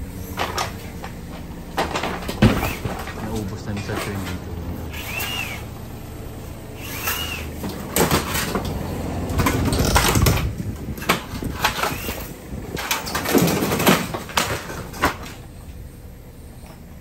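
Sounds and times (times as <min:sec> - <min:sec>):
excavator engine rumble: 0:00.0 - 0:17.0
wood cracking and crunching: 0:00.2 - 0:05.6, 0:07.2 - 0:15.8.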